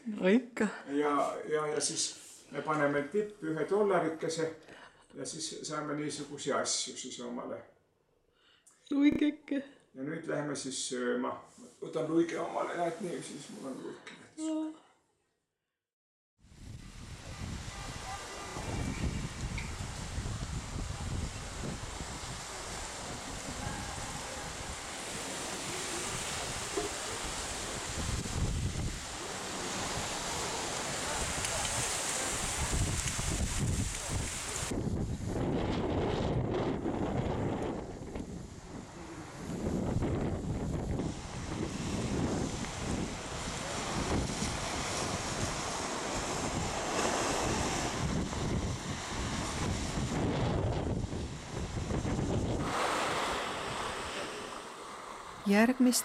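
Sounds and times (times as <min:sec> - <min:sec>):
wind buffeting microphone: 0:16.6 - 0:54.5
waves breaking on shore: 0:16.6 - 0:56.0.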